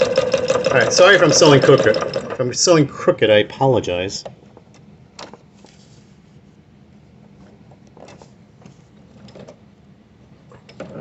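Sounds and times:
sewing machine running: 0.0 - 2.7.

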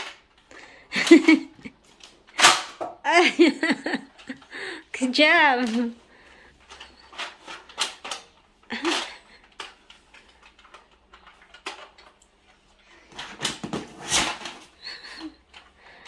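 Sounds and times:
plastic toy blaster clicks and knocks: 2.0 - 3.0, 6.7 - 12.2.

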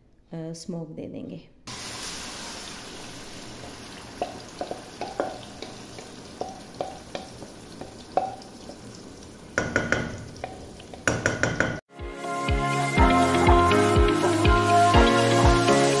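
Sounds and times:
chicken sizzling in hot oil: 1.7 - 11.3
taps and scrapes against pot: 4.2 - 8.8, 9.6 - 11.8.

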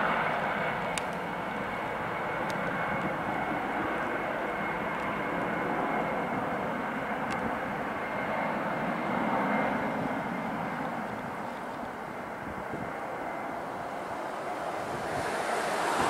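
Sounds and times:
jet engines running: 0.0 - 16.0
high steady whine: 9.9 - 16.0.

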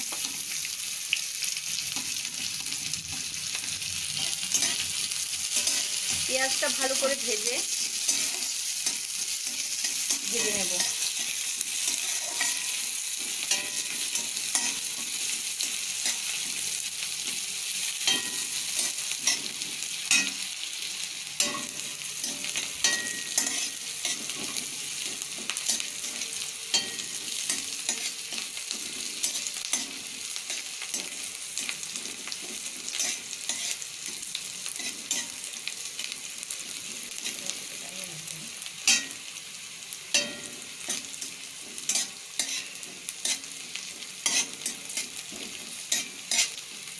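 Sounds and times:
onion sizzling in hot oil: 0.0 - 46.9
spatula scraping and tapping pan: 4.2 - 7.0, 7.7 - 16.6, 18.0 - 20.5, 21.4 - 35.5, 40.1 - 46.6.

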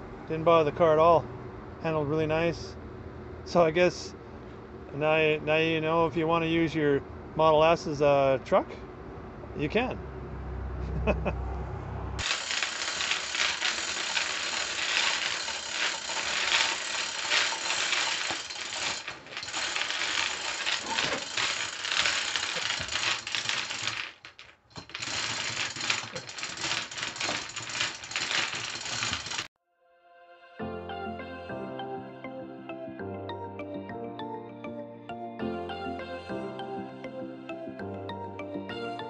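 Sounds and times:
chain hoist ratcheting: 12.2 - 29.5.

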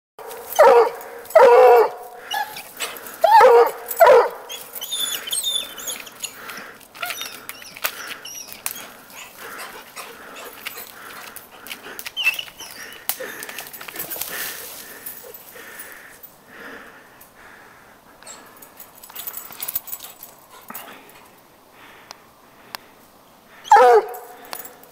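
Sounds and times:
dog baying: 0.3 - 13.1
dog whining: 0.6 - 6.4, 7.0 - 10.8, 12.2 - 13.1
paws scrabbling on tree trunk: 4.5 - 15.0.

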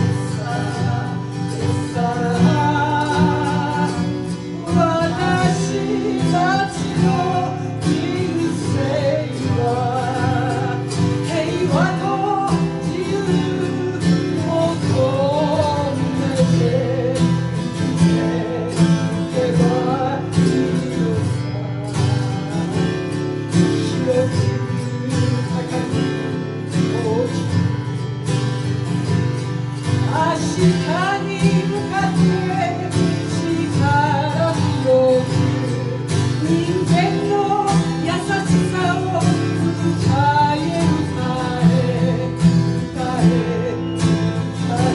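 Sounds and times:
acoustic guitar and autoharp: 0.0 - 44.9.

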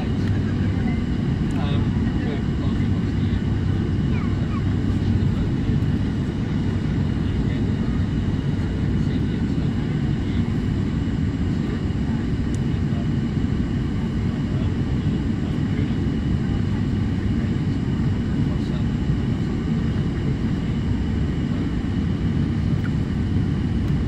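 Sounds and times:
steady hum: 0.0 - 24.0
turboprop cabin drone: 0.0 - 24.0.

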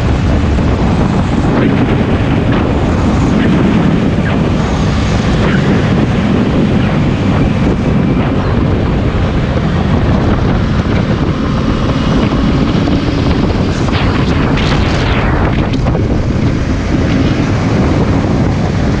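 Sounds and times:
motorcycle engine running: 0.0 - 19.0
wind noise over microphone: 0.0 - 19.0.

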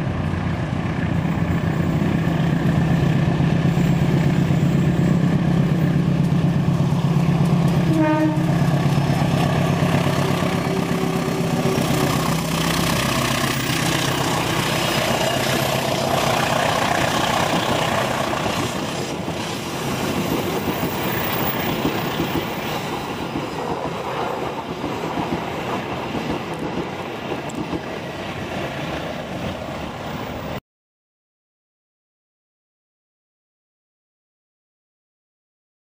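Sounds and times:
locomotive engine droning: 0.0 - 28.4
train wheels clattering on rails: 1.0 - 29.7
train horn: 7.8 - 8.8, 10.2 - 12.5.

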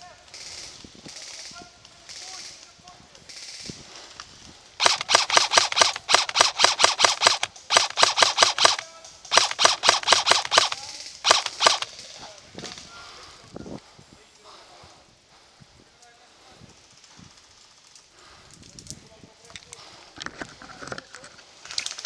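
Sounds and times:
airsoft rifle firing rapid shots: 4.8 - 12.2.

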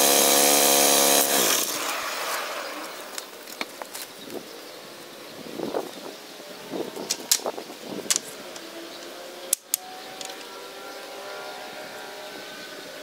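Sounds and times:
wooden pieces clacking: 8.1 - 8.7, 9.5 - 10.5.

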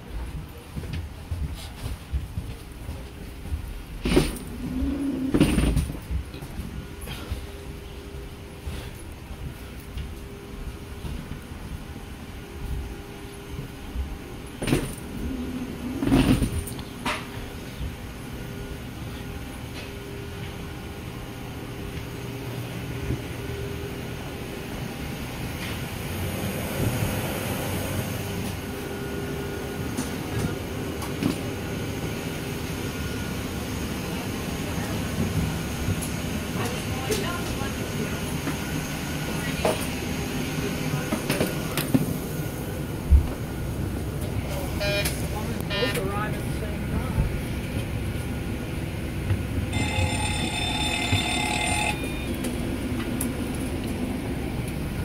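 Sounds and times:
footsteps: 0.1 - 4.5
multi-tone cockpit alarm: 44.8 - 46.1, 49.7 - 52.5.

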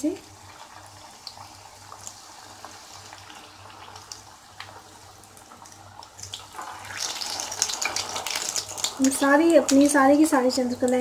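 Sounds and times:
pastries sizzling in hot oil: 0.0 - 11.0.

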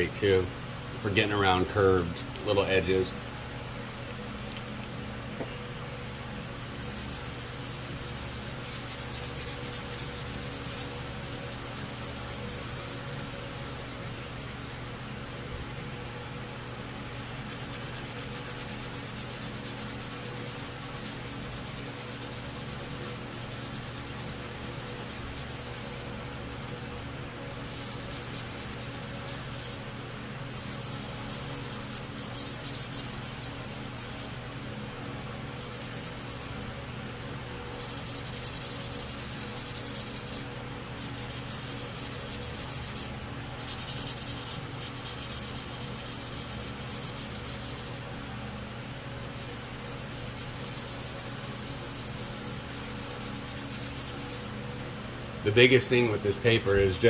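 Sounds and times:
sandpaper rubbing on plastic: 6.8 - 15.3, 17.1 - 26.1, 27.6 - 29.9, 30.6 - 34.3, 35.5 - 36.6, 37.8 - 48.0, 49.4 - 54.4.

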